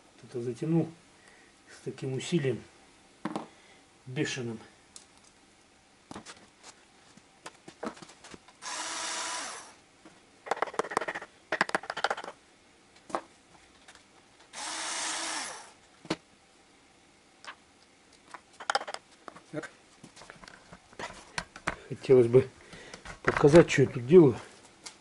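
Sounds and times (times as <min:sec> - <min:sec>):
whirring noise winding down: 0:08.6 - 0:09.8, 0:14.6 - 0:15.8.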